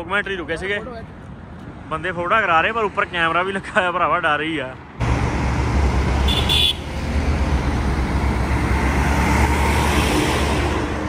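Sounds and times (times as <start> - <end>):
road traffic passing: 0.0 - 11.0
truck passing close: 5.0 - 11.0.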